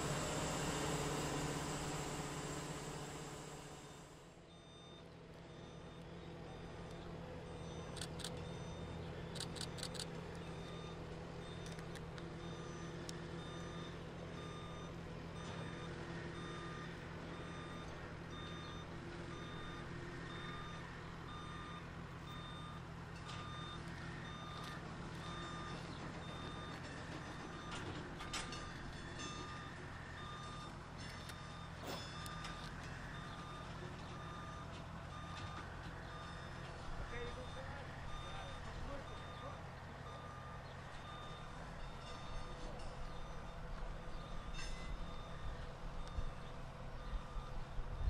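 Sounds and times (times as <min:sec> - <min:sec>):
diesel engine running: 0:00.0 - 0:48.0
backup alarm beeping: 0:12.4 - 0:22.8, 0:23.4 - 0:48.0.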